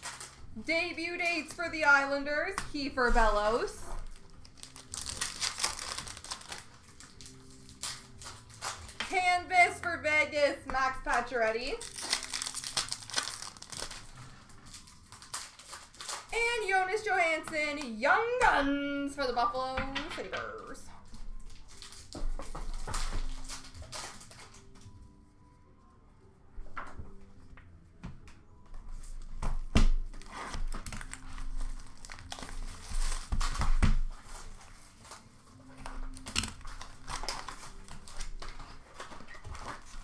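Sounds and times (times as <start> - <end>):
card pack wrappers crinkling: 0.0 - 0.6, 3.4 - 9.2, 11.0 - 17.1, 21.2 - 24.8, 30.0 - 40.0.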